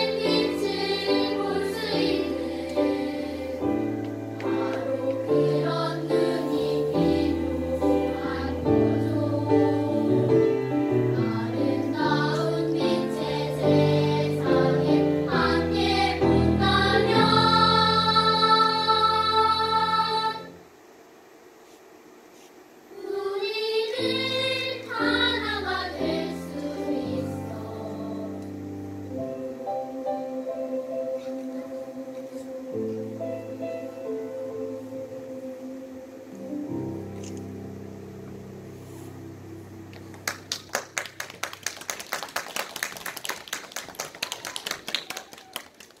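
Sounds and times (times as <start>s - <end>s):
children's choir singing: 0.0s - 20.6s, 22.9s - 37.0s
piano accompaniment: 24.0s - 41.2s
audience applauding: 40.0s - 46.0s.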